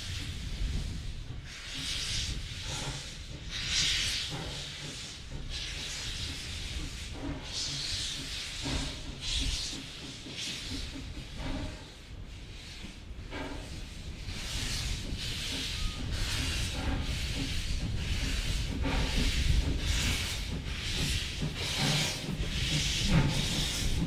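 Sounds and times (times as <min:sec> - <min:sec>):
steam locomotive hissing bursts: 0:00.0 - 0:24.0.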